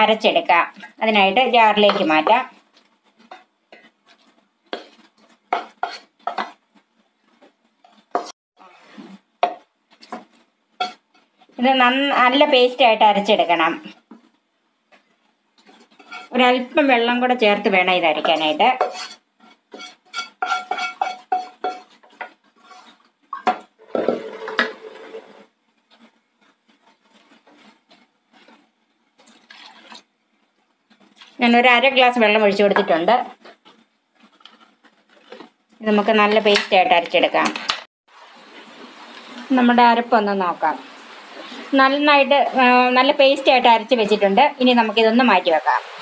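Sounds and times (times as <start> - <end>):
utensil scraping pan: 3.1 - 6.6, 15.6 - 16.6, 18.1 - 23.1, 23.8 - 28.6
pan clattering down: 23.4 - 25.4.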